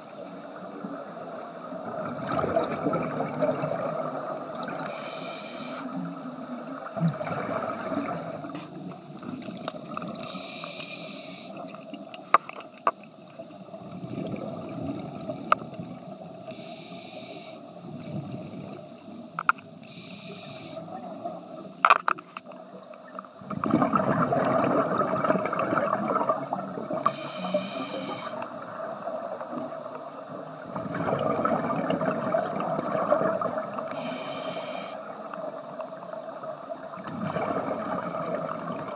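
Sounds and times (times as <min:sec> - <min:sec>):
exhaled bubbles burbling: 0:01.8 - 0:04.9, 0:06.4 - 0:10.2, 0:13.7 - 0:16.4, 0:23.4 - 0:27.1, 0:28.4 - 0:33.9, 0:35.5 - 0:38.9
hissing regulator inhalations: 0:04.8 - 0:06.1, 0:10.2 - 0:11.9, 0:16.5 - 0:17.8, 0:19.8 - 0:20.9, 0:27.0 - 0:28.5, 0:33.9 - 0:35.2.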